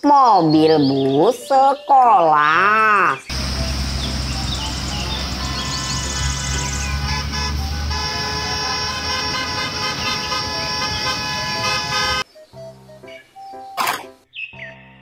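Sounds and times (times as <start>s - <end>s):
background music chords: 3.3s - 15.0s.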